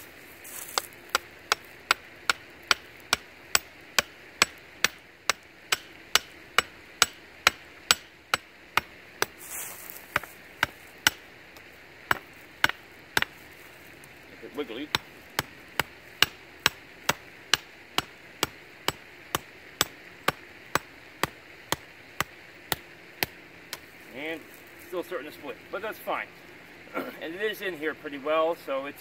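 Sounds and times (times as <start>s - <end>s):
hatchet hammering wooden stake: 0.5s - 13.4s, 14.6s - 23.9s.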